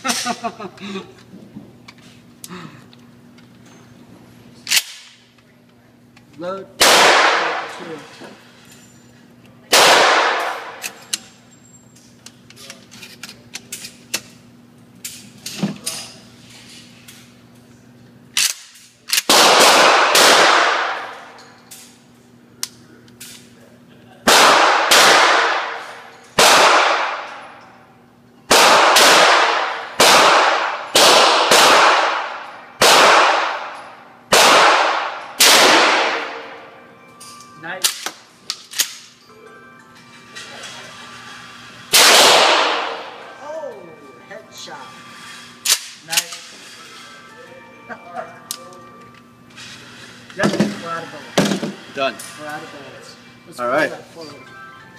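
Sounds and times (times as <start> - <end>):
gunshots echoing indoors: 6.8 - 7.9, 9.7 - 10.9, 18.4 - 21.4, 24.2 - 27.6, 28.5 - 36.7, 41.9 - 43.3
gun loading clicks: 37.8 - 39.1.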